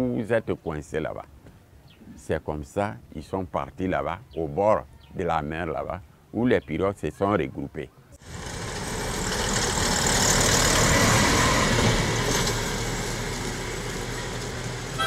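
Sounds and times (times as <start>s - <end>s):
motor passing by: 8.2s - 15.0s.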